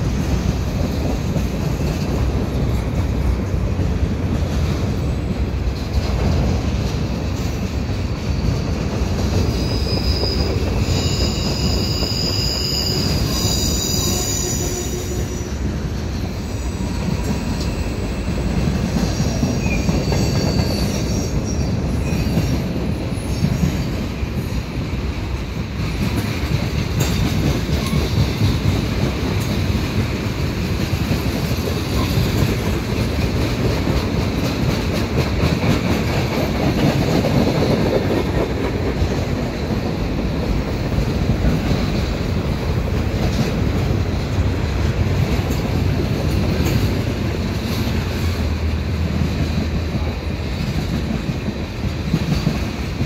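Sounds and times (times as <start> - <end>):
train wheels rumbling on rail: 0.0 - 53.0
high-pitched wheel squeal: 9.4 - 15.5, 19.2 - 22.5.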